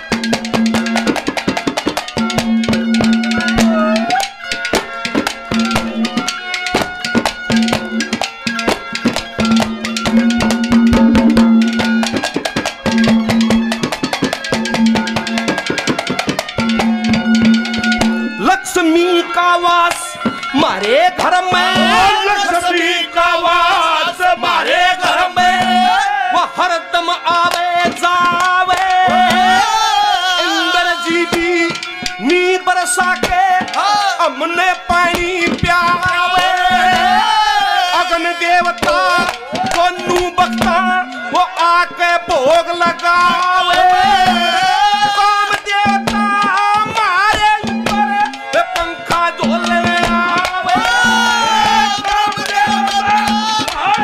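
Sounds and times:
hand drum rhythm: 0:00.0 - 0:54.0
harmonium melody: 0:00.0 - 0:54.0
wavering vibrato melodic line: 0:02.2 - 0:18.6.

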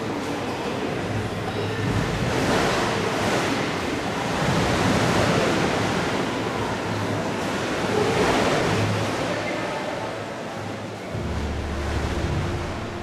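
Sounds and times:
water surging and splashing: 0:00.0 - 0:13.0
low hum: 0:11.1 - 0:13.0.

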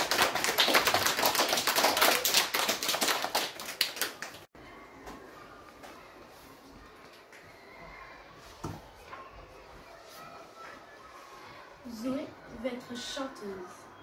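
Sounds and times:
audience applauding: 0:00.0 - 0:04.5.

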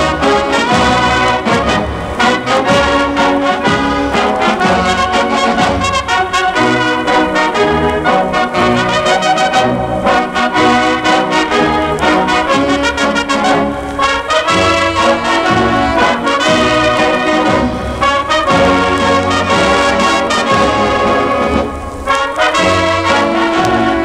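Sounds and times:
brass band playing march: 0:00.0 - 0:24.0.

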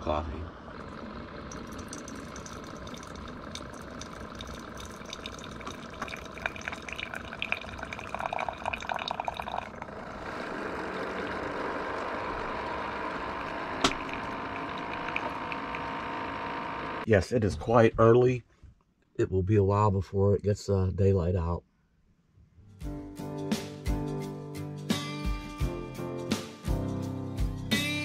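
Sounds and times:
coffee streaming into mug: 0:01.5 - 0:10.0, 0:13.4 - 0:15.8
coffee maker click: 0:13.8 - 0:15.1.

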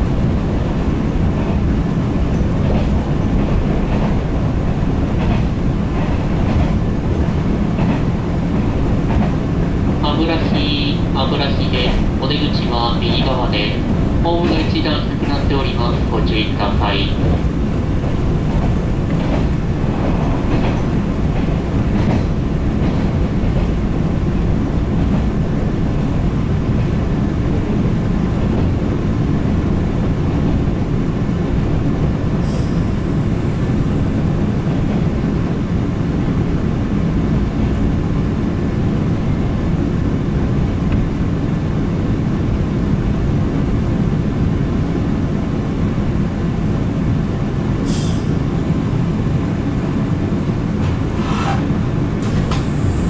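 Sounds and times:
train wheels rumbling on rails: 0:00.0 - 0:53.0
rail-joint clicks: 0:18.5 - 0:23.7, 0:50.8 - 0:52.9.

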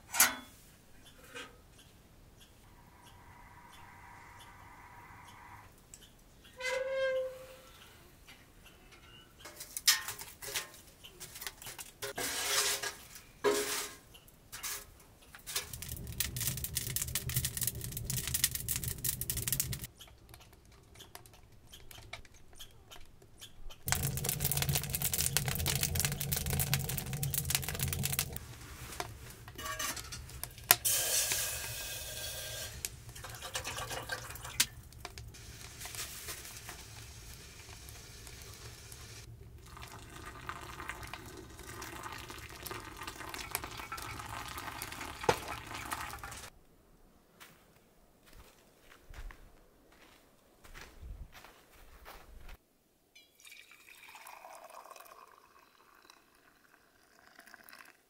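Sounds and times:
camp cookware clinking: 0:00.0 - 0:01.6, 0:15.5 - 0:46.5
water pouring: 0:15.5 - 0:19.9, 0:23.9 - 0:46.5, 0:53.3 - 0:58.0.

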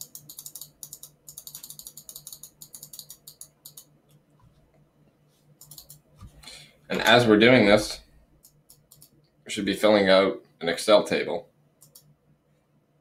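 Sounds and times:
computer mouse clicks: 0:00.0 - 0:04.2, 0:05.6 - 0:06.4, 0:08.4 - 0:09.4, 0:11.8 - 0:12.1
faint low hum: 0:00.0 - 0:13.0.

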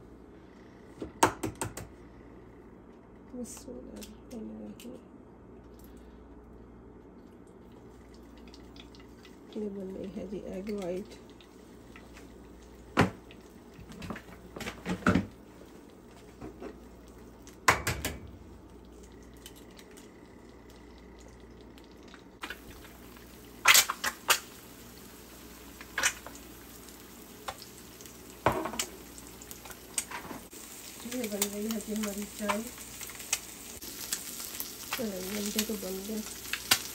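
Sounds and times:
eggs sizzling in a pan: 0:07.8 - 0:17.8, 0:18.4 - 0:36.9.

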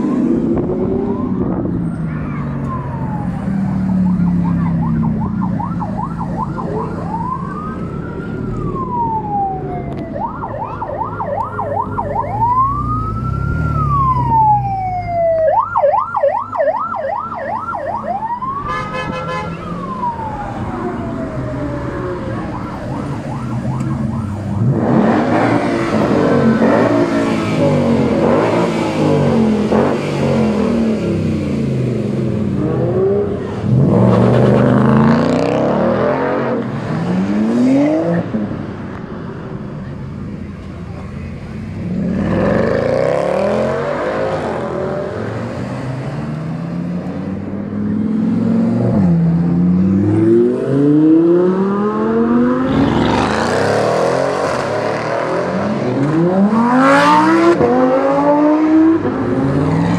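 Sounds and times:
sports car engines revving: 0:00.0 - 0:15.9, 0:17.4 - 0:59.9
car engines running in traffic: 0:00.0 - 0:59.9
siren wailing and yelping: 0:02.6 - 0:27.2.

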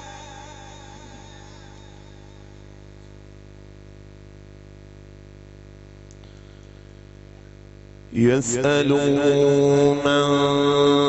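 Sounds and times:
man chanting through loudspeaker: 0:00.0 - 0:02.6, 0:08.1 - 0:11.0
sound system hum: 0:00.0 - 0:11.0.

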